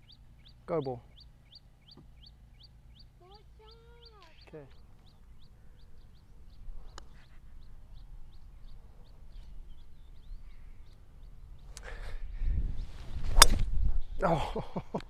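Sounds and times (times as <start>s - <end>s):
bird chirping: 0.0s - 14.2s
golf driver striking ball: 13.4s - 13.6s.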